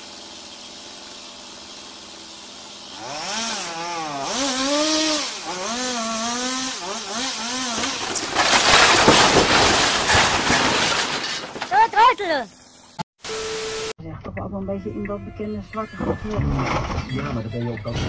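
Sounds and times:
chainsaw revving: 0:00.0 - 0:08.2
roof crashing down: 0:07.6 - 0:12.3.

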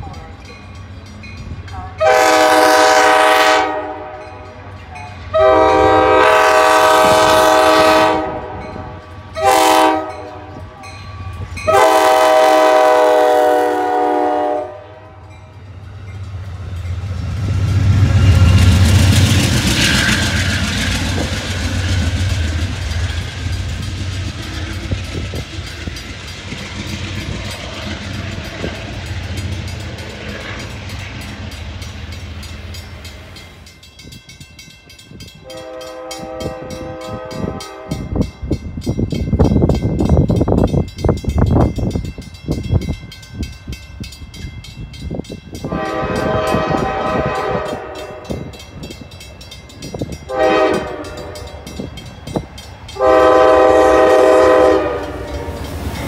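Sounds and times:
locomotive engine rumbling: 0:00.0 - 0:56.0
locomotive air horn blasts: 0:01.9 - 0:04.4, 0:05.3 - 0:10.7, 0:11.6 - 0:15.4, 0:35.4 - 0:38.2, 0:45.6 - 0:48.5, 0:50.3 - 0:51.6, 0:53.0 - 0:55.7
train wheels running over rails: 0:15.5 - 0:56.0.

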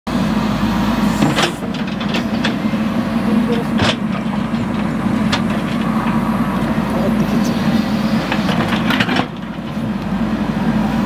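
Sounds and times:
diesel engine running under load: 0:00.1 - 0:11.0.

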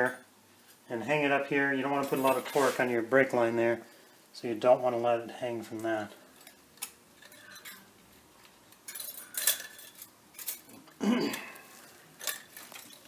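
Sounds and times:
metal scrape: 0:02.0 - 0:03.0
metallic clinks and rattles: 0:07.2 - 0:07.9, 0:08.7 - 0:10.9, 0:12.1 - 0:13.0.

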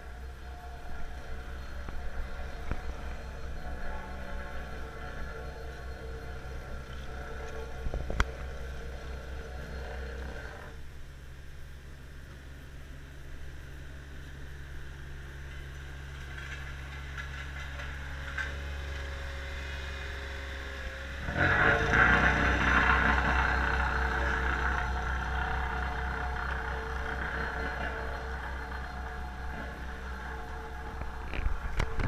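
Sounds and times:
engine humming: 0:00.0 - 0:32.0
loud tonal mechanical noise: 0:00.0 - 0:32.0.

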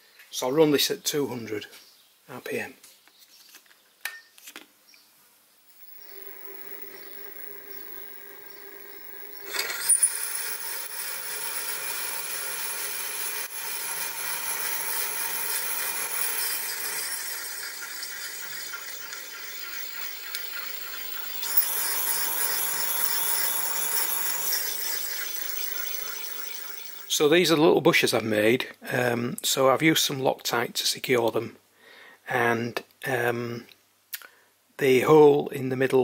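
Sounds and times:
milling motor whine: 0:05.7 - 0:27.2
reamer scraping metal: 0:05.7 - 0:27.2.

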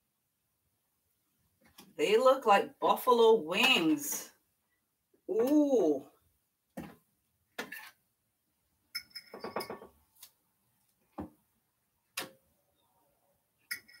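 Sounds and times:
utensil clinking against dishes: 0:09.0 - 0:09.9.

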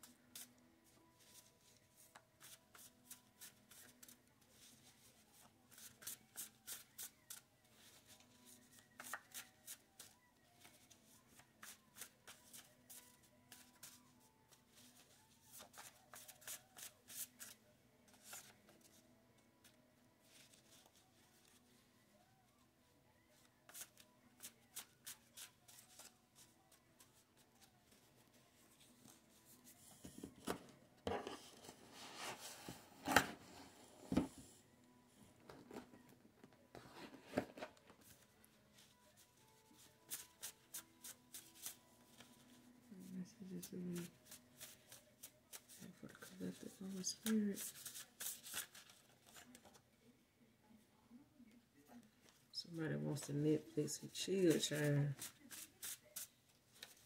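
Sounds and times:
cards being shuffled: 0:08.8 - 0:10.8, 0:44.0 - 0:49.8, 0:54.5 - 0:57.0.

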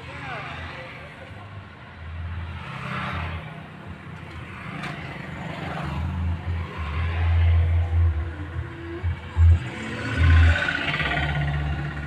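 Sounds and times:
motorcycles passing: 0:02.5 - 0:12.0.

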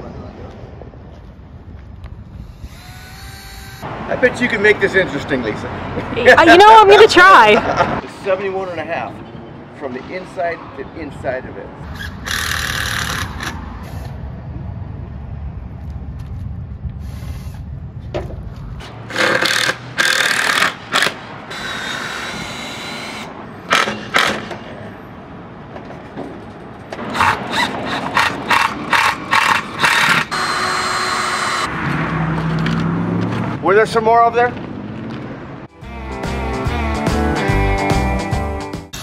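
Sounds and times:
cordless drill running: 0:02.5 - 0:03.9, 0:21.5 - 0:23.3, 0:29.3 - 0:31.7.

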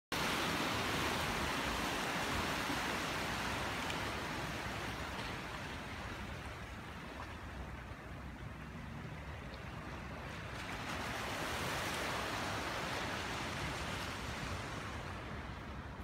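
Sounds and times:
surf washing over rocks: 0:00.1 - 0:07.0, 0:10.1 - 0:16.0.

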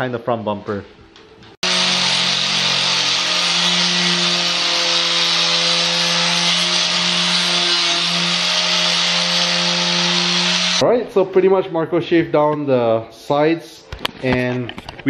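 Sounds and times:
angle grinder grinding: 0:01.6 - 0:10.8
grinding scraping hiss: 0:01.6 - 0:10.8.

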